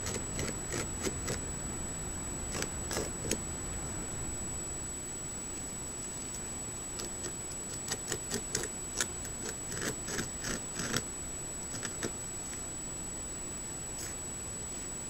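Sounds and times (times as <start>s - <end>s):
beaver gnawing wood: 0.0s - 1.5s, 2.5s - 3.4s, 7.0s - 12.2s.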